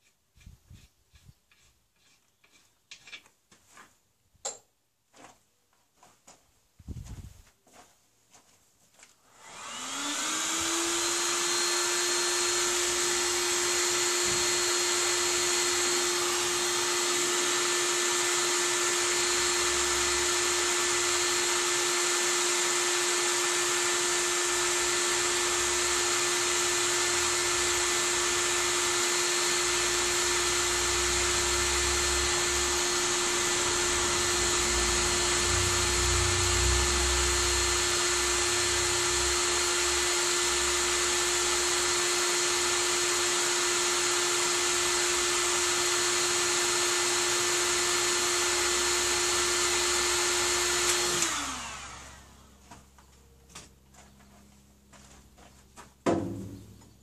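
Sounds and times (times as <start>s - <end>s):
power tool whining: 9.3s - 52.6s.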